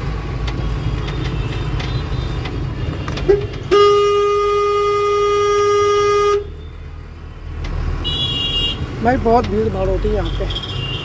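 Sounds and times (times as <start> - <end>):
truck engine rumble: 0.0 - 11.0
vehicle horn: 3.0 - 6.6, 8.0 - 8.8.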